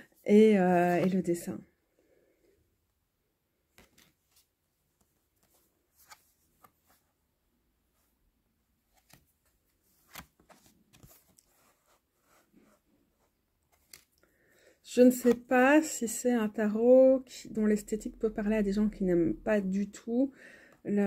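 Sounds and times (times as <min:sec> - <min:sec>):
cards clicking and sliding: 0:10.0 - 0:11.5, 0:13.7 - 0:14.2.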